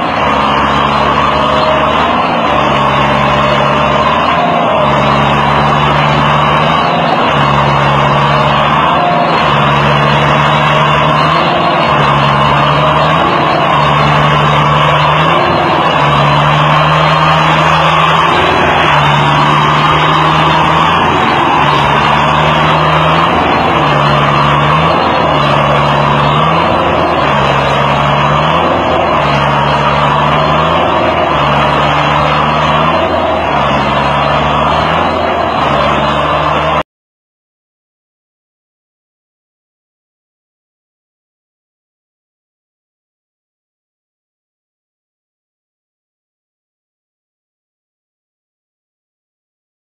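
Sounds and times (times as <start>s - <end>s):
tractor engine revving: 0.0s - 36.9s.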